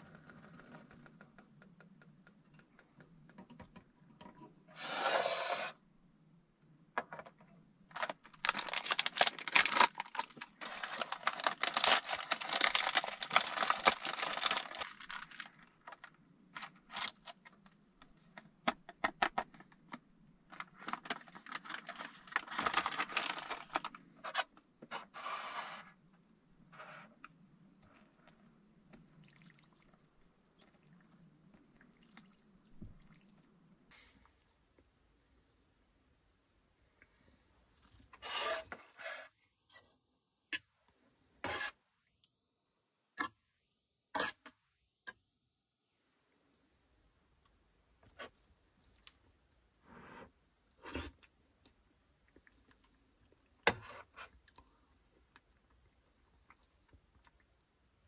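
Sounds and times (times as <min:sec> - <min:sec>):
dense crackling: 0:07.9 - 0:16.0
packet crinkling: 0:07.9 - 0:17.4, 0:20.5 - 0:24.0.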